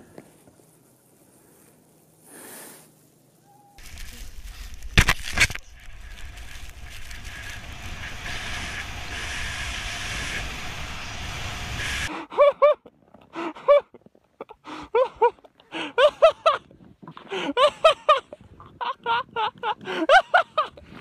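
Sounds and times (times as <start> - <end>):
snowboard rushing over snow: 3.8 - 12.1
wind on microphone: 3.8 - 12.1.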